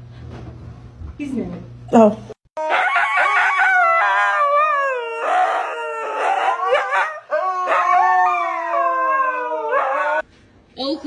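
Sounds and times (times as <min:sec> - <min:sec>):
dogs howling together: 0:02.6 - 0:10.2.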